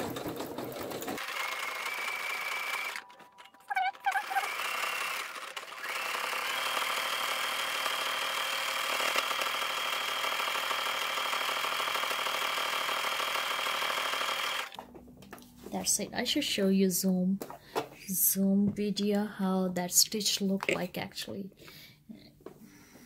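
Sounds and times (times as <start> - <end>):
sewing machine sewing: 0.0 - 14.8.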